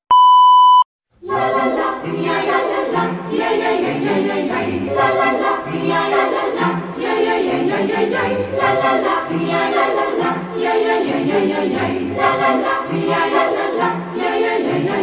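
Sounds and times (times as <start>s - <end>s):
steady test tone beep: 0.1s - 0.9s
choir singing a cappella: 1.2s - 15.0s.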